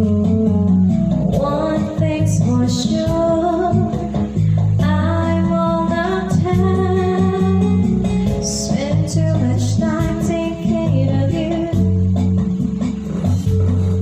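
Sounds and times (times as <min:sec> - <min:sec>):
backing track with guitar: 0:00.0 - 0:14.0
woman singing into microphone: 0:01.3 - 0:12.0.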